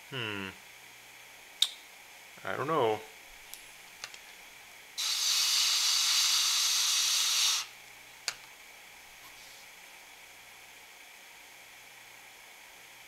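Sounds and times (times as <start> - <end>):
person blowing breath: 5.0 - 7.7.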